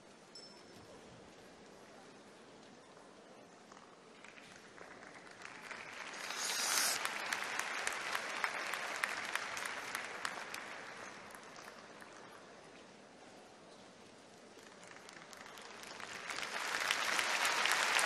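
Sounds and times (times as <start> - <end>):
crowd applauding: 4.2 - 12.2, 14.6 - 18.0.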